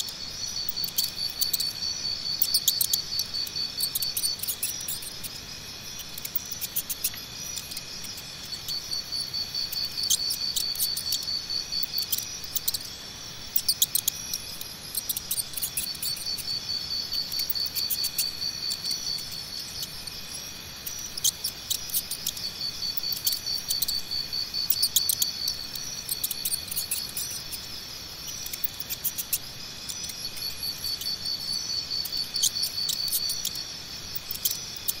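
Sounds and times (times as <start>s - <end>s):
crickets trilling: 0.0s - 35.0s
mouse nibbling corn: 0.7s - 5.3s, 24.6s - 27.6s.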